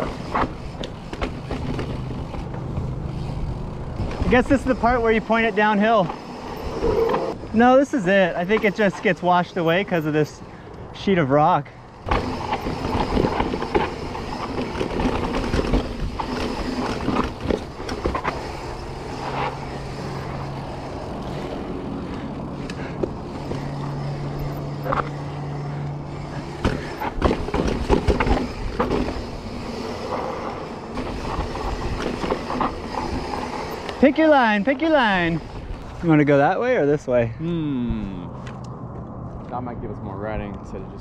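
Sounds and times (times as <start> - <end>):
bike tyre rumble: 0.0 - 41.0
knocks and rattles over rocks: 12.1 - 18.5, 26.4 - 29.3.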